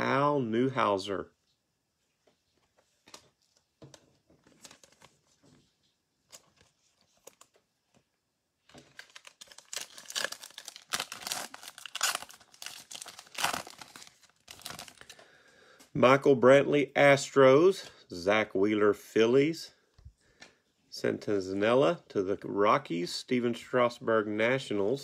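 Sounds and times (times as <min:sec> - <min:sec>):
foil wrapper crinkling and tearing: 0:08.7 - 0:15.2.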